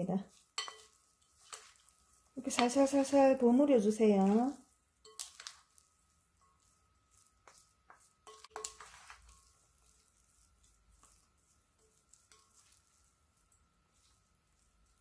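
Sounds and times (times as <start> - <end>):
wet squishing: 0.3 - 3.3, 4.0 - 15.0
wooden spatula tapping glass bowl: 0.6 - 1.8, 2.4 - 3.3, 5.0 - 5.6, 7.4 - 9.5.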